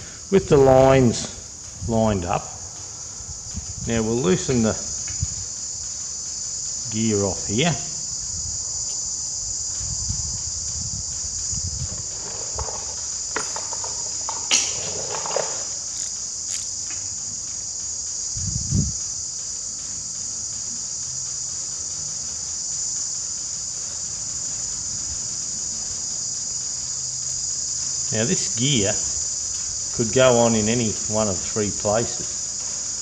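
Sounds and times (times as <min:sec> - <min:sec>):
insect chirring: 0:00.0 - 0:33.0
metallic clinks and knocks: 0:11.9 - 0:15.8.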